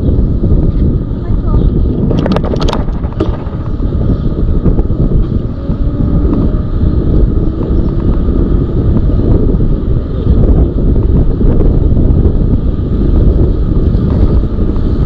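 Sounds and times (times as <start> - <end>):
road noise: 0.0 - 15.0
wind buffeting microphone: 0.0 - 15.0.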